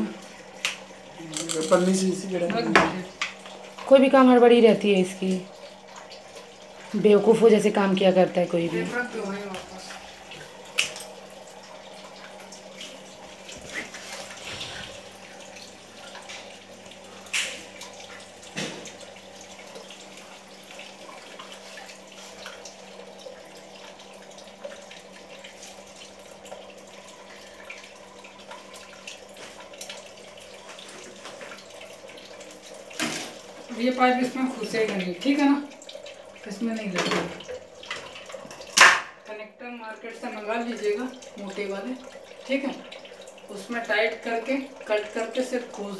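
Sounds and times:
water running: 0:00.0 - 0:45.9.

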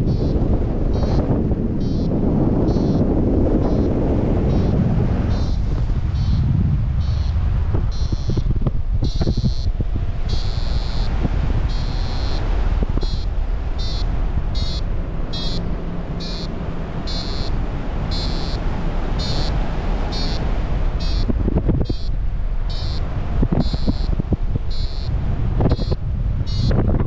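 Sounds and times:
short high-pitched beeps: 0:00.0 - 0:01.2, 0:01.8 - 0:09.7, 0:10.3 - 0:18.6, 0:19.2 - 0:20.4, 0:21.0 - 0:23.0, 0:23.6 - 0:26.9
wind rushing on microphone: 0:00.0 - 0:27.0.

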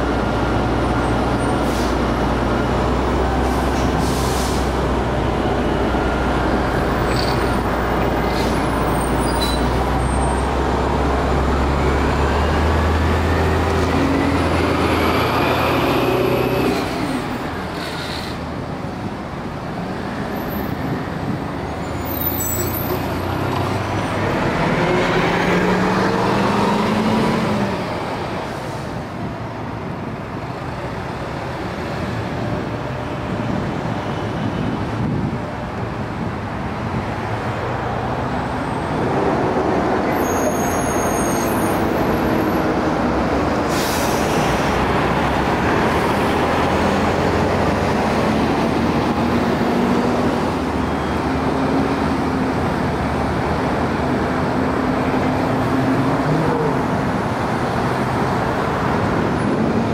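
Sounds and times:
bus engine revving: 0:00.0 - 0:18.6, 0:23.0 - 0:28.5, 0:41.8 - 0:59.9
bus accelerating away: 0:00.0 - 0:59.9
air brake hisses: 0:03.5 - 0:04.8, 0:17.8 - 0:18.4, 0:43.7 - 0:44.6.

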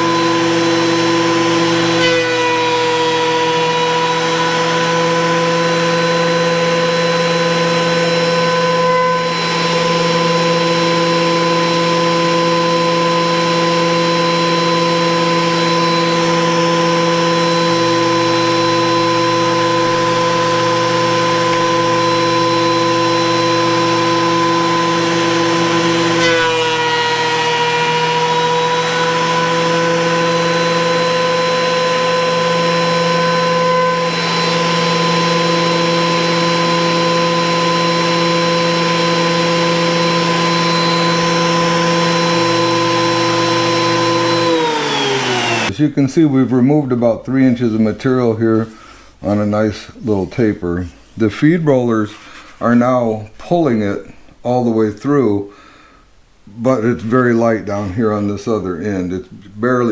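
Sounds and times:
thickness planer whining: 0:00.0 - 0:45.8.

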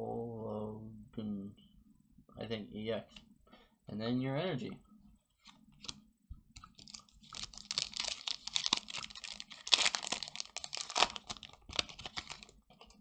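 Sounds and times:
foil wrapper crinkling and tearing: 0:06.8 - 0:12.6.

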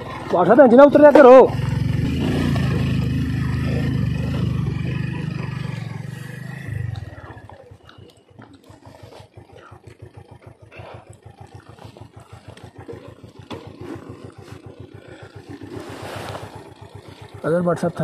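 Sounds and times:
motorcycle engine at low revs: 0:00.0 - 0:18.0.

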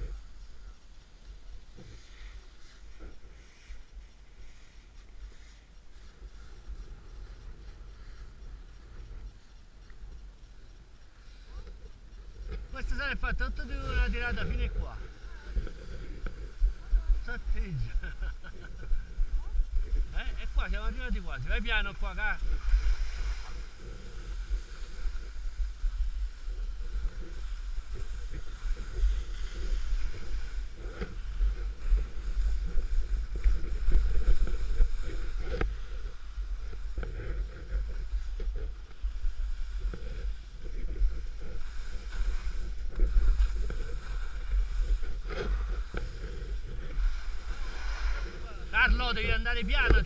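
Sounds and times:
skis scraping over slushy snow: 0:20.0 - 0:37.0, 0:37.8 - 0:50.0.

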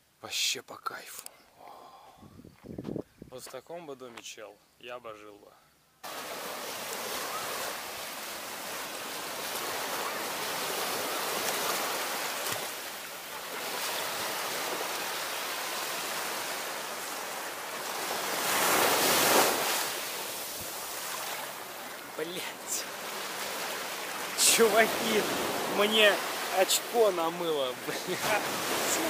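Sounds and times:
small waves breaking on sand: 0:06.0 - 0:29.0
water surging and foaming: 0:06.0 - 0:29.0.

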